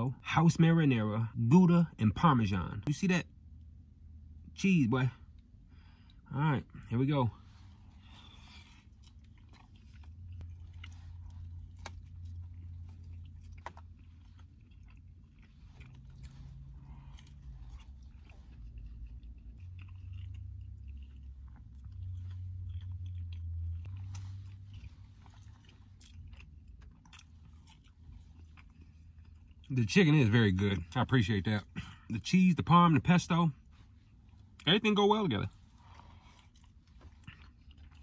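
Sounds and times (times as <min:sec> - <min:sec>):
low hum: 0:01.2 - 0:29.8
person chewing: 0:07.4 - 0:29.7, 0:35.5 - 0:38.0.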